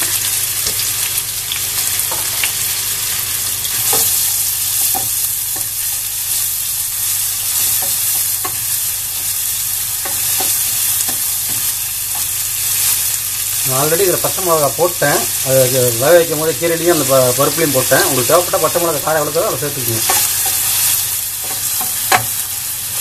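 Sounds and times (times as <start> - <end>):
onions sizzling in oil: 0.0 - 23.0
spatula scraping and knocking pan: 19.9 - 22.4.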